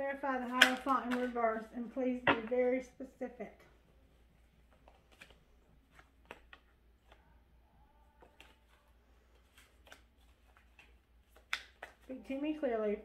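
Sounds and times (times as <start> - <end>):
cards being shuffled: 0.4 - 1.6, 4.7 - 7.3, 8.2 - 12.4.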